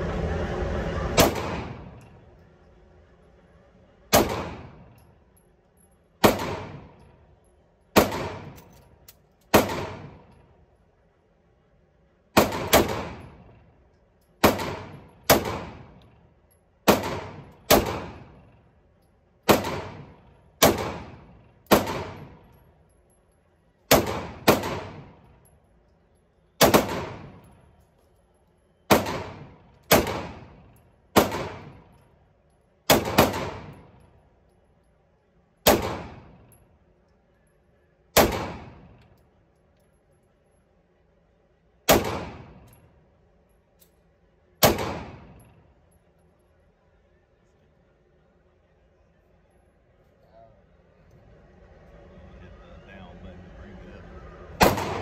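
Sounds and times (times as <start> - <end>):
pistol shots echoing indoors: 6.2 - 7.1, 7.9 - 8.8, 19.4 - 22.6, 26.6 - 28.1, 28.9 - 34.0, 35.6 - 36.6, 38.1 - 39.2, 44.6 - 45.6, 54.6 - 55.0.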